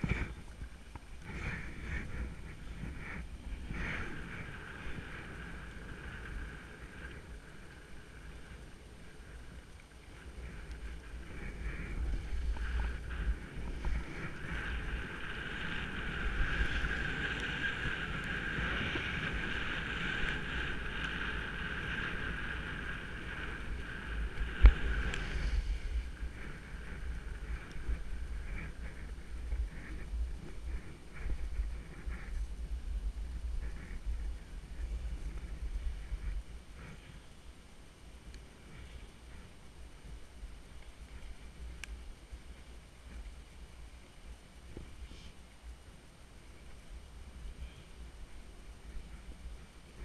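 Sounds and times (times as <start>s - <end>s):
wind rumble on microphone: 0.0s - 50.0s
skis hissing through powder snow: 1.2s - 37.2s.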